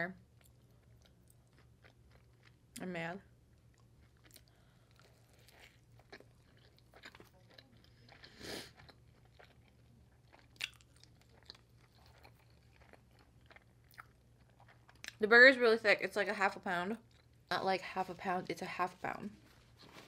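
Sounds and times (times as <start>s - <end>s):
soft chewing: 0.3s - 15.2s, 17.0s - 17.4s.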